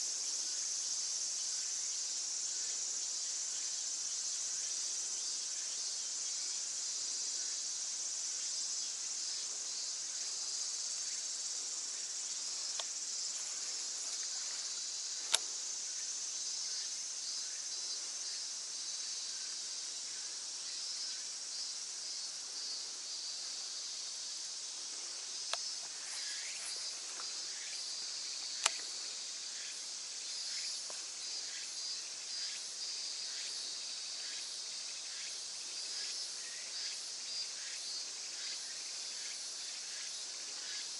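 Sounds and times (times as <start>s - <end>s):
insects chorusing: 0.0s - 40.9s
sharp clicks: 15.2s - 15.5s, 28.6s - 28.9s.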